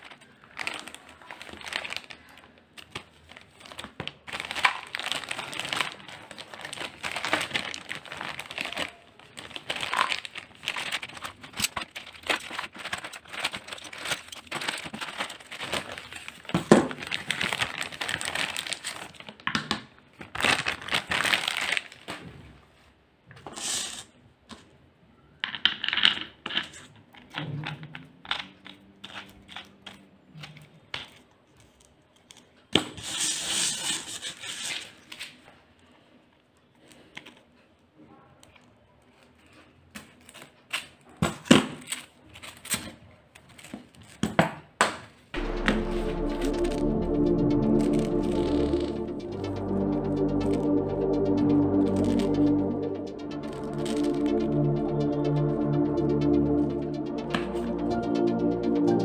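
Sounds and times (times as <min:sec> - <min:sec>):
plastic bag crinkling: 0:00.0 - 0:19.4, 0:20.2 - 0:22.2.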